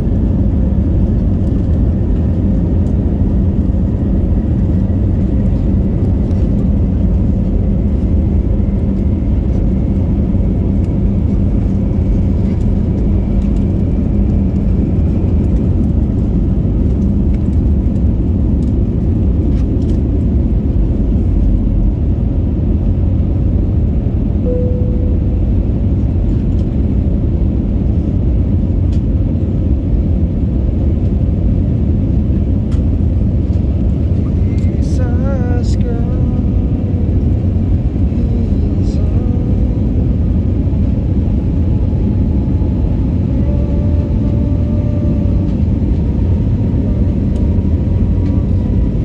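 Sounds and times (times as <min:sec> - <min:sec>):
jet engines rumbling in cabin: 0:00.0 - 0:49.0.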